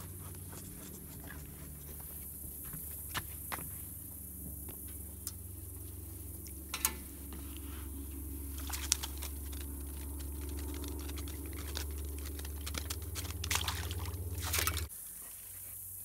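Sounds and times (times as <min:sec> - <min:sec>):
steady low hum: 0:00.0 - 0:16.0
wire mesh clicks and rattles: 0:04.9 - 0:14.9
water splashing and dripping: 0:08.1 - 0:14.9.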